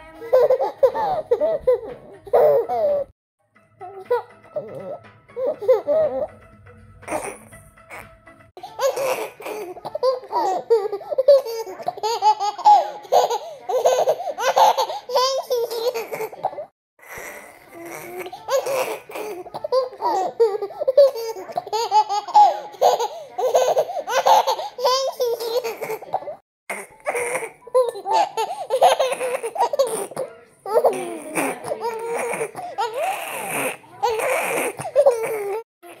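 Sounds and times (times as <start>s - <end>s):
toddler giggling: 0.2s - 3.1s, 8.8s - 16.6s, 17.9s - 26.4s, 27.2s - 35.6s.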